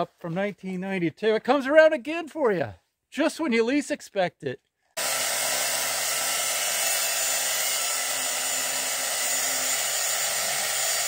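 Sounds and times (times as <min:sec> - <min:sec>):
angle grinder cutting metal pipe: 0:05.0 - 0:11.0.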